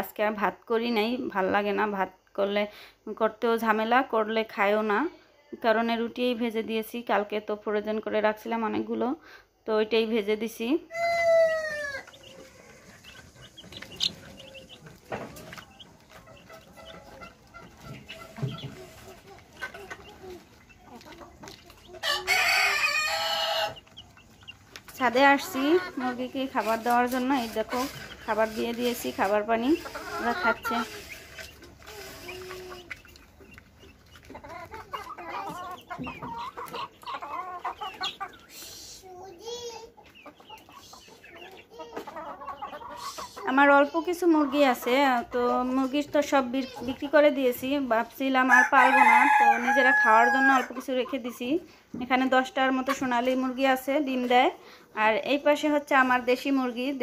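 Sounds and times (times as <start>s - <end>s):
chicks peeping: 10.9s - 54.4s.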